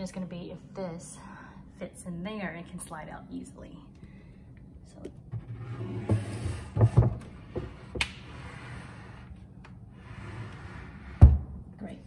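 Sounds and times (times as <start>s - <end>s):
drawer scraping into cabinet: 5.4s - 9.2s.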